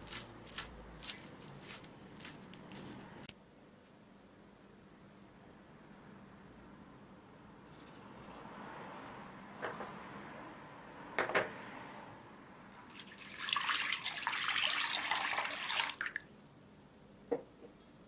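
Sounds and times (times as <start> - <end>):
water pouring into wooden bowl: 12.9 - 16.3.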